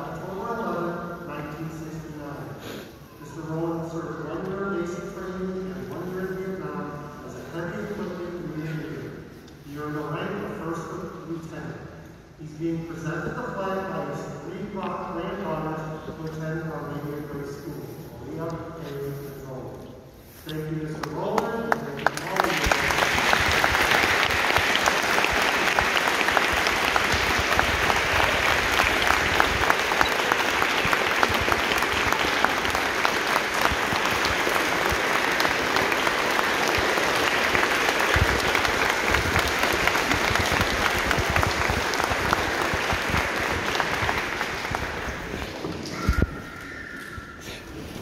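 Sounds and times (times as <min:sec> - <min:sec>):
crowd applauding: 0:21.0 - 0:46.0.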